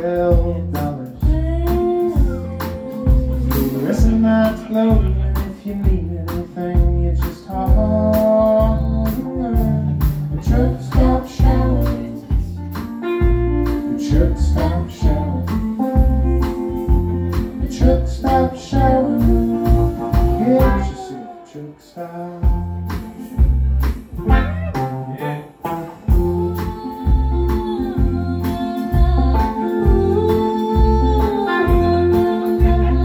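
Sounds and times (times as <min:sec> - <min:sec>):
steady drum beat: 0:00.0 - 0:21.1, 0:22.4 - 0:33.0
live rock band playing: 0:00.0 - 0:33.0.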